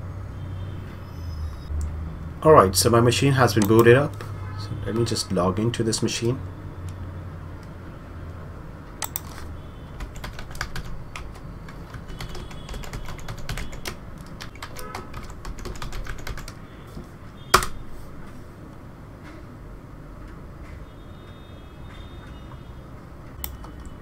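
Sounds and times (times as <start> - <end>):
keyboard key clicks: 17.6 - 17.8.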